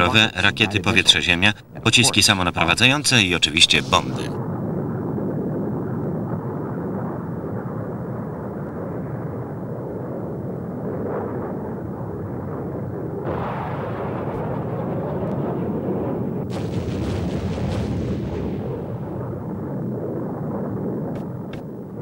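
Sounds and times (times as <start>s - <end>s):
bomb explosion: 3.6s - 22.0s
jet aircraft engine noise: 19.1s - 22.0s.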